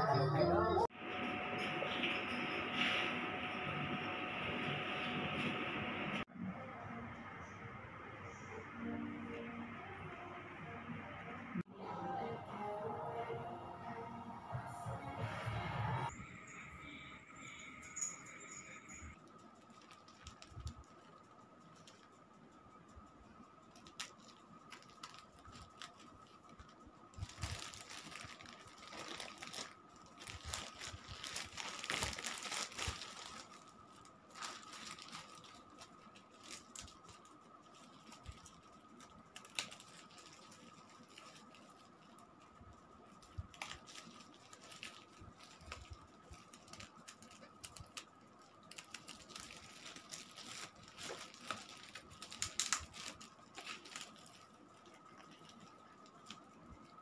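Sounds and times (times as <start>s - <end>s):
faint steady high tone: 16.1s - 19.2s
plastic packaging crinkling: 19.2s - 22.2s, 23.6s - 57.0s.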